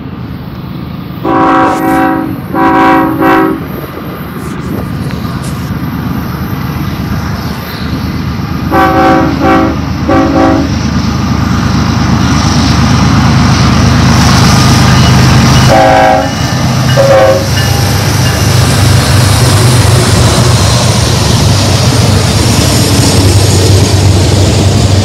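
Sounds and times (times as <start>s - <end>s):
locomotive rumble: 0.0s - 25.0s
train air horn blasts: 1.2s - 3.7s, 8.7s - 10.8s, 15.6s - 17.9s.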